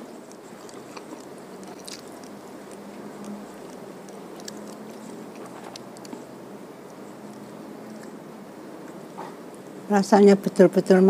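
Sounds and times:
person chewing food: 0.0s - 8.2s
faint steady hum: 0.0s - 11.0s.

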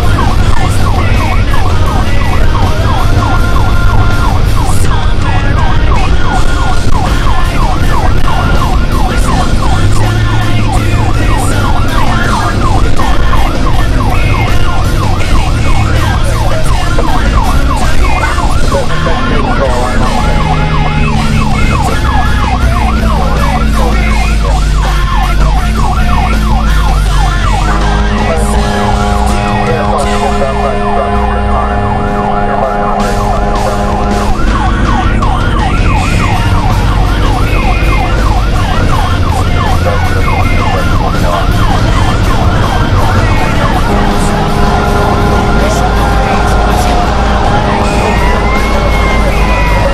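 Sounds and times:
fire truck siren yelping: 0.0s - 49.9s
low engine drone: 0.0s - 49.9s
held horn note: 27.6s - 35.3s, 42.2s - 49.9s.

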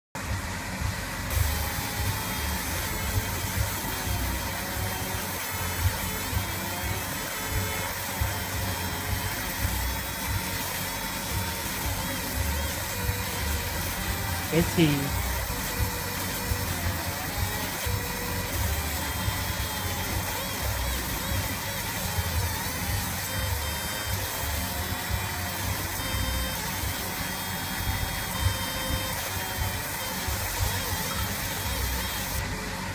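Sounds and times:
laser machine humming: 0.2s - 32.9s.

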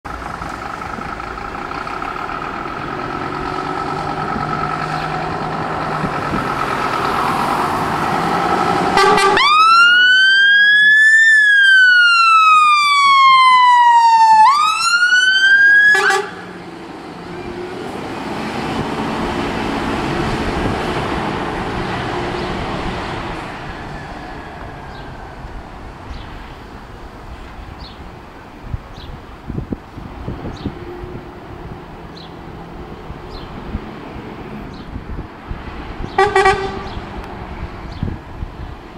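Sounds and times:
diesel engine: 0.0s - 38.9s
electronic siren wailing: 9.0s - 16.5s.

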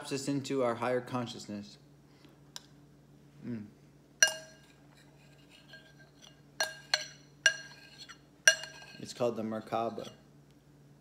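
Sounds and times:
utensil clinking against bowl: 4.2s - 10.2s.

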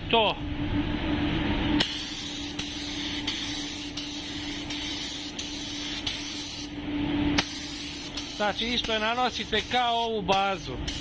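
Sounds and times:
paint booth humming: 0.0s - 11.0s
spray gun hissing: 1.8s - 6.7s, 7.4s - 10.0s.

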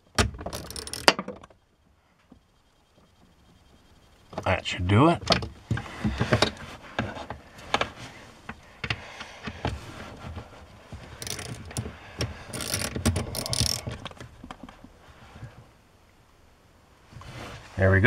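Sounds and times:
ratchet clicking: 0.5s - 1.1s, 11.2s - 11.8s, 12.5s - 14.0s.

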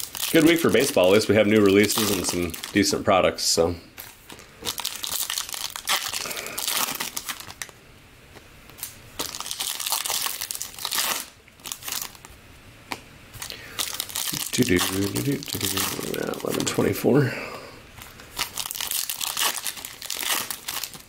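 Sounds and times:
cards rustling: 0.0s - 3.0s, 8.3s - 17.1s, 18.0s - 21.0s
foil wrapper crinkling: 0.0s - 3.0s, 4.0s - 7.8s, 8.7s - 12.4s, 13.3s - 17.1s, 18.0s - 21.0s.

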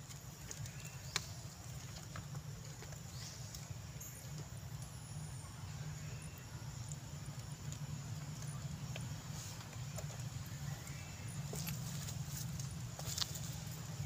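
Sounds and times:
faint clicks: 6.3s - 11.0s.

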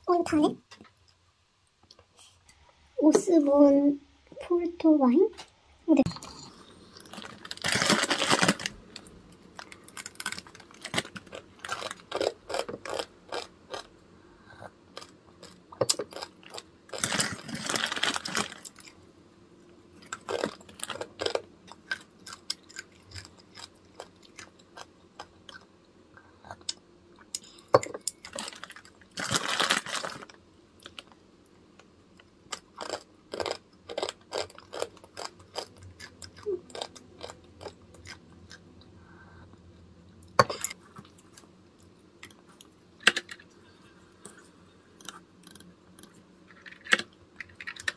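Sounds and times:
crunching dry noodles: 6.9s - 13.9s, 14.9s - 19.0s, 20.0s - 25.6s, 28.1s - 31.1s, 32.5s - 38.6s
plastic packet crinkling: 7.0s - 13.0s, 16.1s - 18.9s, 20.1s - 21.4s, 28.3s - 31.0s.

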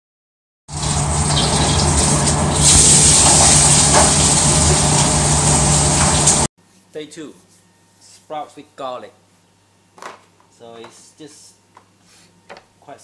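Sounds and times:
wok sizzling: 0.7s - 6.5s.

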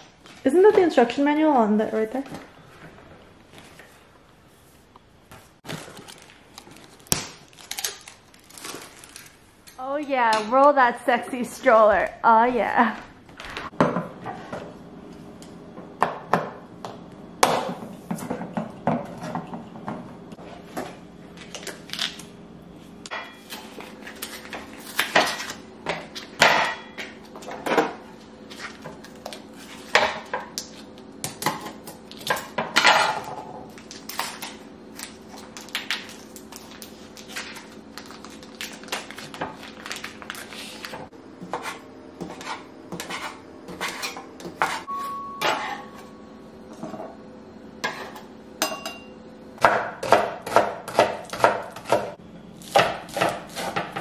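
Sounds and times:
kitchenware clattering: 42.2s - 46.1s, 47.8s - 49.1s.

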